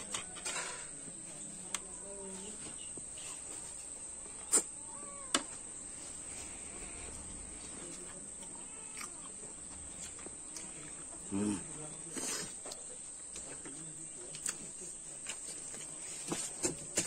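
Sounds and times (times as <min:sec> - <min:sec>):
insects trilling: 0:00.0 - 0:16.2.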